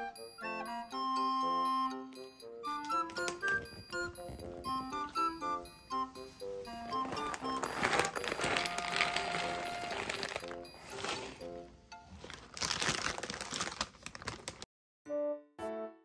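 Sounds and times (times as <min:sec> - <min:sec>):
light background music: 0:00.0 - 0:13.7
foil bag crinkling: 0:06.7 - 0:14.7
kibble pouring into bowl: 0:07.5 - 0:11.4.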